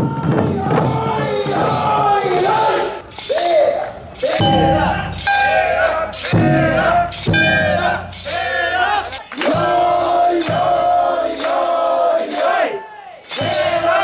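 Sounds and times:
crowd of men chanting: 0.0 - 14.0
metallic jingling: 0.9 - 9.4, 13.2 - 14.0.

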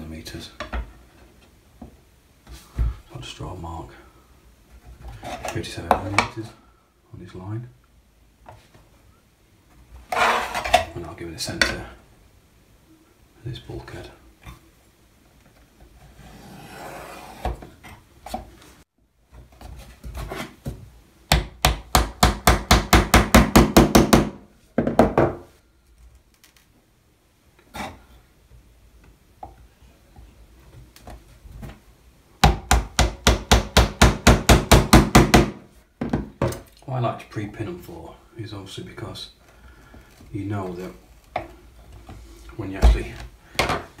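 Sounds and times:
scraping and handling wood: 4.7 - 6.6, 9.7 - 11.9.

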